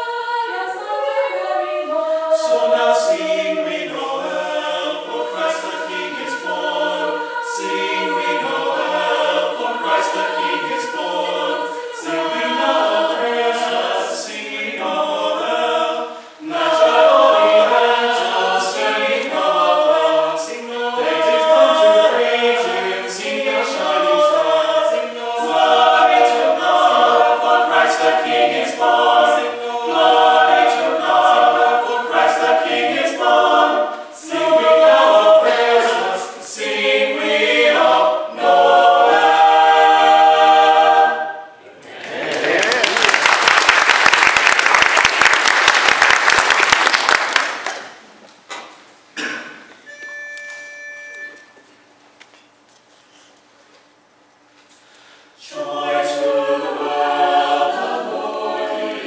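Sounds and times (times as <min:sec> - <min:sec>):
mixed choir singing a cappella: 0:00.0 - 0:43.4, 0:55.0 - 0:59.0.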